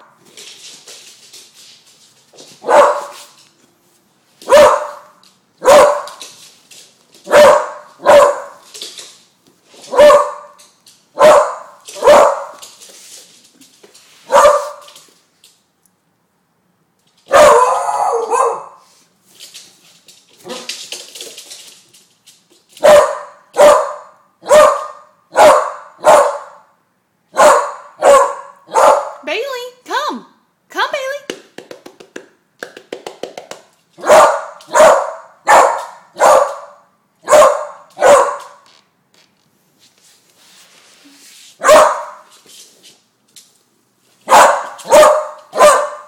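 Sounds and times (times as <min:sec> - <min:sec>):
young dog barking: 0:02.6 - 0:03.1, 0:04.5 - 0:06.2, 0:07.3 - 0:08.6, 0:09.9 - 0:10.5, 0:11.2 - 0:12.5, 0:17.3 - 0:18.8, 0:22.8 - 0:26.6, 0:27.3 - 0:29.2, 0:34.0 - 0:38.6, 0:41.6 - 0:42.2, 0:44.3 - 0:46.0
longer noisy dog sound: 0:02.6 - 0:03.4, 0:04.4 - 0:06.4, 0:07.2 - 0:08.7, 0:09.8 - 0:10.6, 0:11.2 - 0:12.8, 0:14.2 - 0:15.0, 0:17.3 - 0:19.1, 0:22.8 - 0:29.2, 0:34.0 - 0:38.6, 0:41.5 - 0:42.4, 0:44.2 - 0:46.0.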